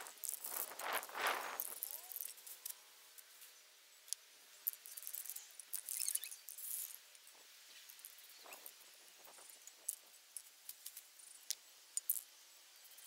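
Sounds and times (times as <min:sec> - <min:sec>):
spray paint hiss: 0:00.0 - 0:02.8.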